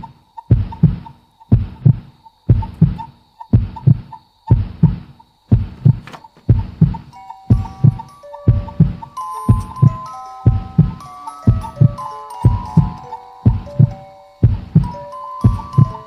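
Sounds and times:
faint high-pitched whine: 0.0 - 16.0
heartbeat thumps: 0.0 - 16.0
soft pulsing tone: 4.8 - 16.0.

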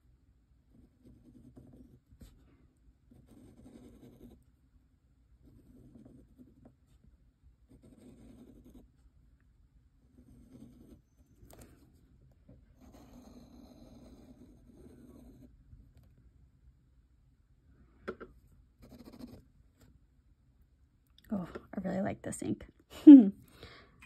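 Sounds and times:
nib scratching on paper: 0.7 - 2.5, 3.1 - 4.5, 5.4 - 7.0, 7.7 - 9.0, 10.1 - 12.0, 12.7 - 16.1, 18.8 - 19.9.

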